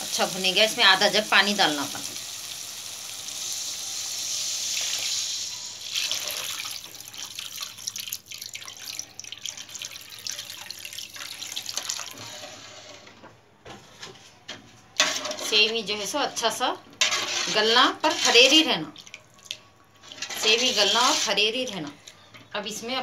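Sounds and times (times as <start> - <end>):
water hissing in hot oil: 0.0 - 12.3
metal spatula stirring: 15.0 - 15.8, 17.0 - 18.7, 20.0 - 21.7.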